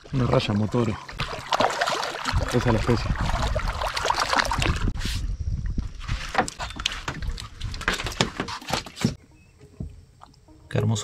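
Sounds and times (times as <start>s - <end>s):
water splashing: 0.0s - 5.0s.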